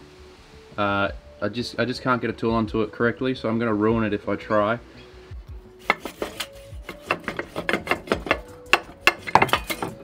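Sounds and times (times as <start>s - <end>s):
metallic clanks of hand tools: 5.8s - 10.0s.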